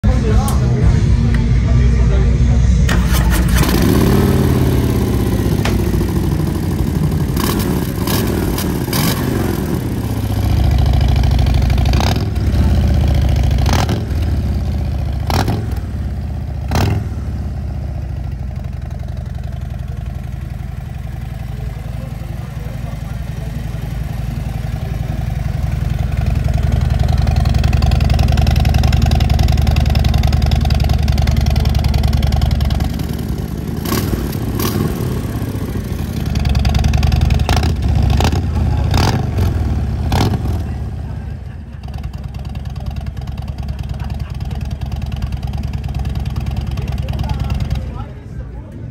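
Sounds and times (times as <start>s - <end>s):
motorcycle engine revving and idling: 2.8s - 48.9s
exhaust pops: 5.5s - 6.2s.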